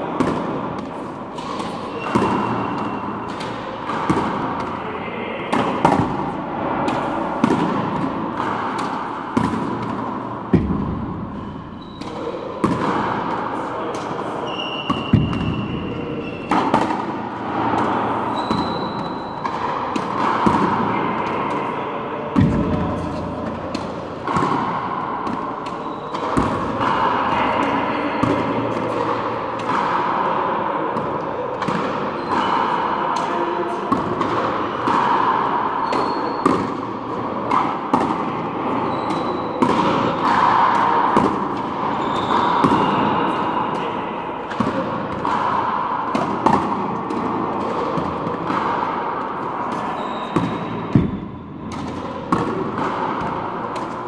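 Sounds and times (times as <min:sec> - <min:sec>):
rubber ball smacking racquets and wall: 0:00.2 - 0:04.8, 0:05.5 - 0:21.5, 0:22.3 - 0:27.4, 0:33.9 - 0:43.8, 0:44.4 - 0:54.0
shoes squeaking on court floor: 0:00.9 - 0:04.8, 0:08.1 - 0:12.9, 0:14.2 - 0:17.1, 0:18.1 - 0:20.4, 0:25.6 - 0:26.9, 0:32.1 - 0:32.7, 0:35.8 - 0:36.6, 0:38.7 - 0:40.3, 0:41.8 - 0:43.6, 0:49.8 - 0:52.4.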